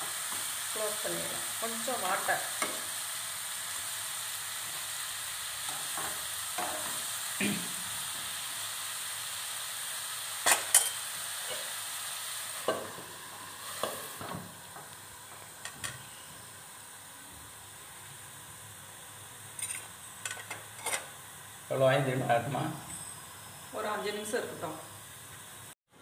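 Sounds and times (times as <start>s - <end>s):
mushrooms sizzling in a frying pan: 0.0s - 25.8s.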